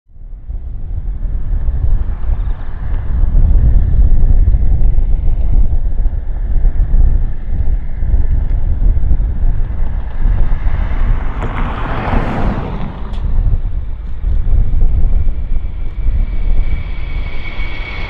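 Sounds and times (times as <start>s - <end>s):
jet engines rumbling: 0.1s - 18.0s
wind buffeting microphone: 0.1s - 18.0s
high hissing rush: 13.2s - 18.0s.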